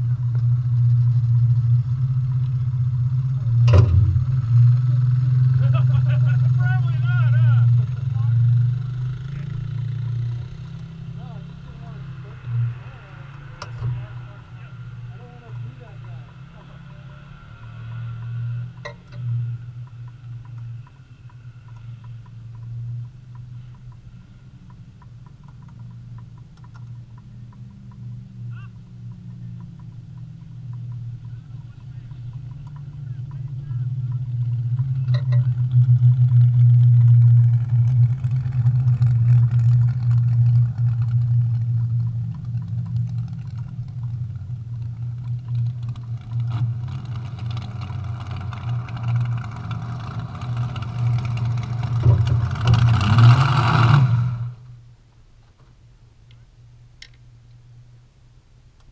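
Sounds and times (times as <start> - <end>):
vehicle engine idling: 0.0 - 58.9
light ticks: 17.9 - 35.6.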